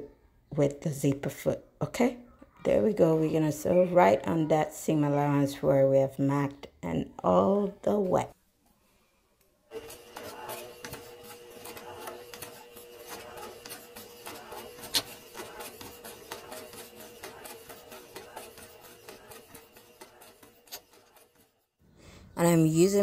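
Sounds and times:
sewing machine stitching: 0:09.7 - 0:21.6.

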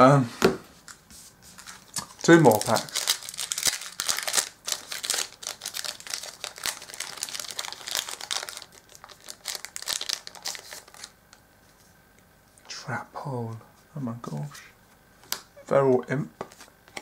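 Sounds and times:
foil wrapper crinkling and tearing: 0:01.6 - 0:11.2.

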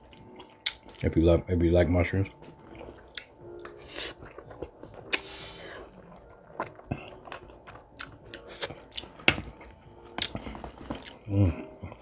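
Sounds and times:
wet chewing and lip smacks: 0:00.1 - 0:01.1, 0:02.7 - 0:09.1.

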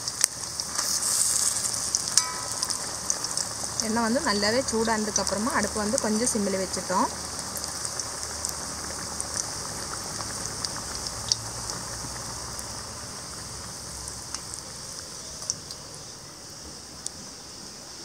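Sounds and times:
small pops and crackles: 0:00.0 - 0:03.9, 0:07.3 - 0:12.7, 0:13.3 - 0:15.9
food deep-frying in oil: 0:00.0 - 0:18.0.

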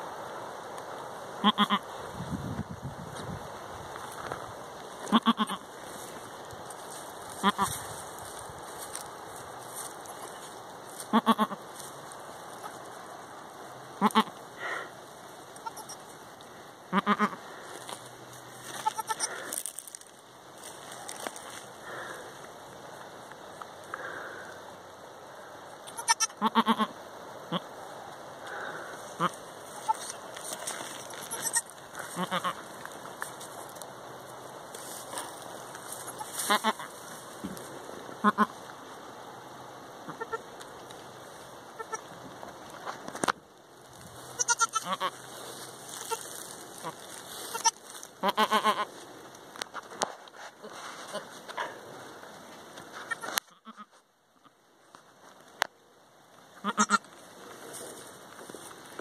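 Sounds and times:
steady hiss: 0:00.0 - 0:59.0
goats bleating: 0:01.4 - 0:01.8, 0:05.0 - 0:05.6, 0:07.4 - 0:07.8, 0:11.0 - 0:11.6, 0:14.0 - 0:14.4, 0:15.6 - 0:16.0, 0:16.9 - 0:17.4, 0:18.6 - 0:19.5, 0:25.9 - 0:26.9, 0:29.2 - 0:32.7, 0:36.2 - 0:36.9, 0:44.4 - 0:45.2, 0:46.0 - 0:48.9, 0:56.6 - 0:57.0.

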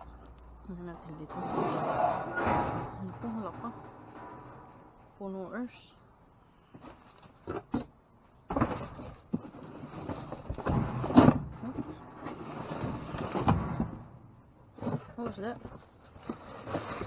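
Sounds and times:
plastic bags rustling and crinkling: 0:15.0 - 0:17.0.

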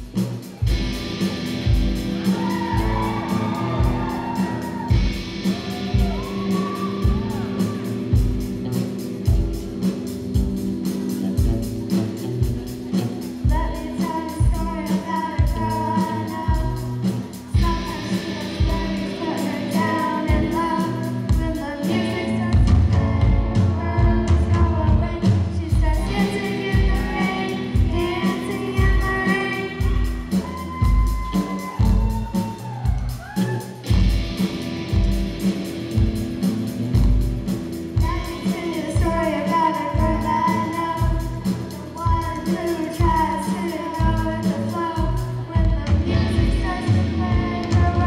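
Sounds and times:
electric guitars: 0:00.0 - 0:48.0
girls singing: 0:17.6 - 0:30.2.

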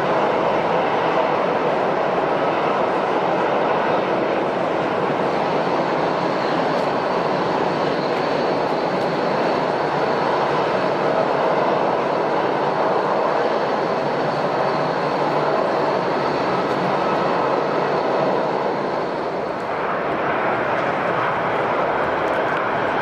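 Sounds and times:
jet engines rushing: 0:00.0 - 0:23.0.

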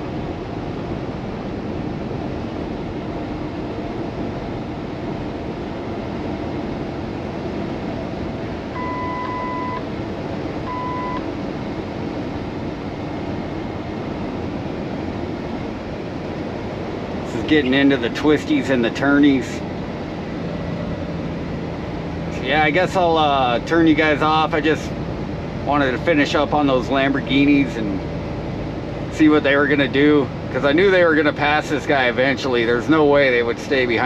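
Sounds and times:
truck cab running noise: 0:00.0 - 0:34.0
electronic beeps: 0:08.8 - 0:09.9, 0:10.7 - 0:11.2.

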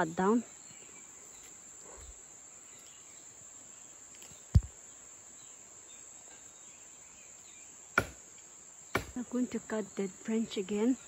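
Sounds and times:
insects droning: 0:00.0 - 0:11.0
sharp knock: 0:08.0 - 0:08.2.

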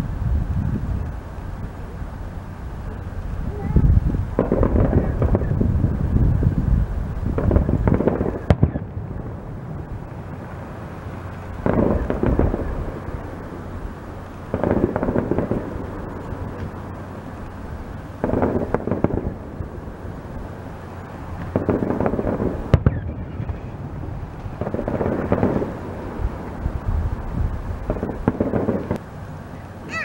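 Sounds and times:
fireworks shells bursting: 0:04.2 - 0:06.4, 0:07.2 - 0:23.7, 0:24.4 - 0:29.1.

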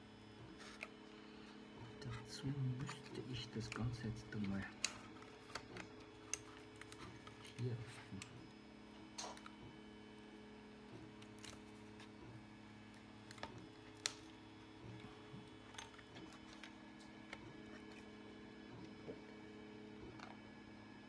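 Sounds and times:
steady low hum: 0:00.0 - 0:21.0
plastic parts clicking: 0:02.9 - 0:07.6.

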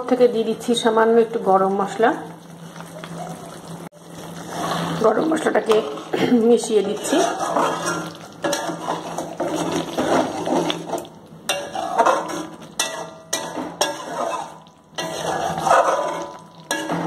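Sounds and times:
spatula scraping metal pan: 0:04.2 - 0:17.0.

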